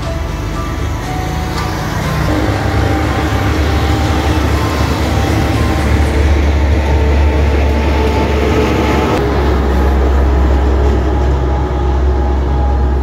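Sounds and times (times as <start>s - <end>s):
heavy truck driving past: 0.0s - 13.0s
highway traffic rumble: 0.0s - 13.0s.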